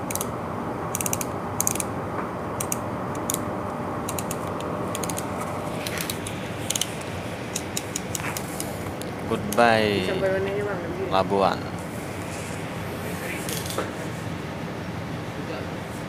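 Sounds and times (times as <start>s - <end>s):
rapid clicking or rattling: 1.0s - 1.9s, 4.1s - 5.3s
ship engine rumble: 3.0s - 11.0s.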